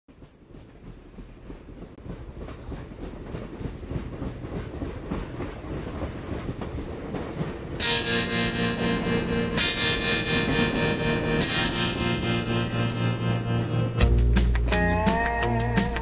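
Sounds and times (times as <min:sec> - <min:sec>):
train clickety-clack on rails: 0:00.1 - 0:13.5
country band with guitar: 0:07.8 - 0:16.0.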